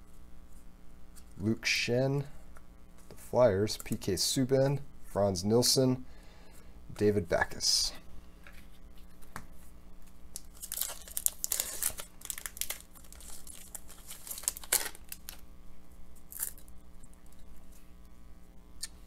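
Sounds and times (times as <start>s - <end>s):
foil wrapper tearing and crinkling: 10.3s - 15.4s, 16.3s - 16.7s.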